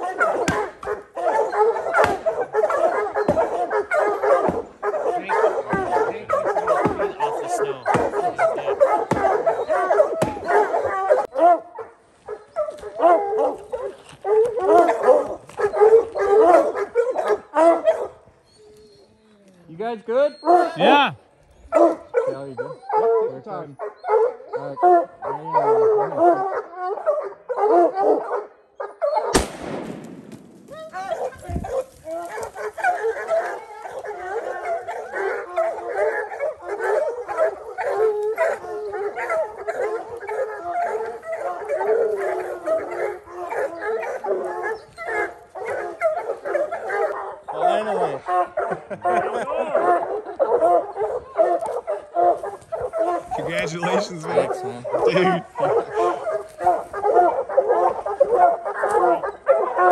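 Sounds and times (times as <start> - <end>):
hounds baying: 0.0 - 59.9.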